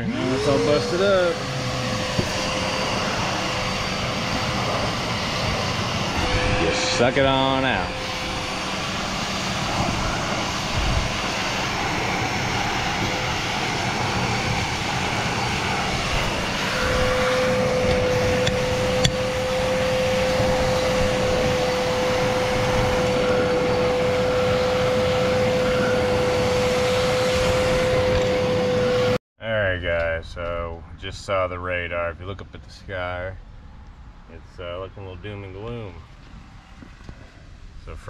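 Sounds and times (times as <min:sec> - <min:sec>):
shop vacuum running: 0:00.0 - 0:29.2
steady whistle: 0:06.1 - 0:10.4.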